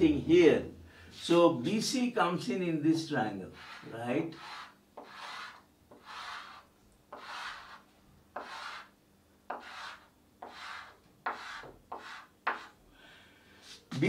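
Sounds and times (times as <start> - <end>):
chalk scratching on blackboard: 3.5 - 12.8
chalk tapping on board: 3.6 - 8.9, 9.5 - 12.8.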